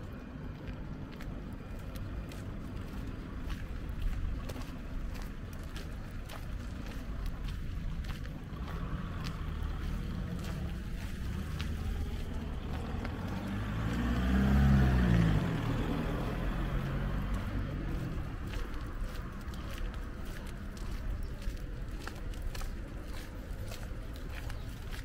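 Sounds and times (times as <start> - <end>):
low rumble of traffic: 0.0 - 25.0
car driving past: 8.5 - 19.6.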